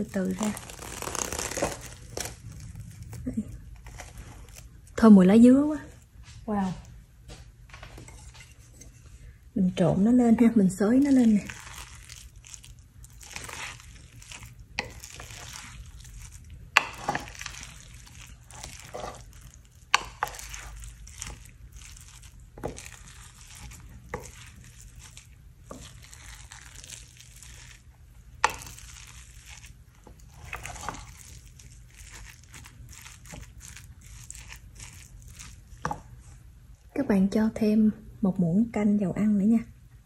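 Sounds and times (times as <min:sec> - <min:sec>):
spatula scraping rice: 0:11.4 - 0:36.1.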